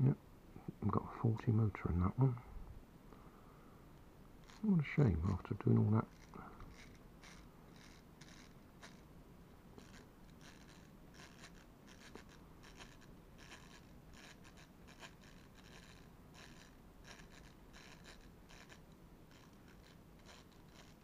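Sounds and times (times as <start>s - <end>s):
clockwork toy motor clicking: 4.4s - 9.1s, 9.8s - 21.0s.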